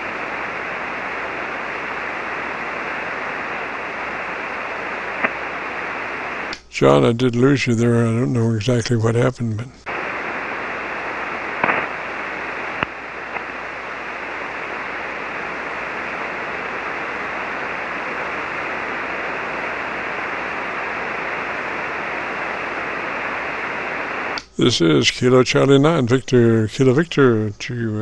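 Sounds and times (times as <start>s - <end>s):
radio receiver hiss and static: 0.0s - 28.0s.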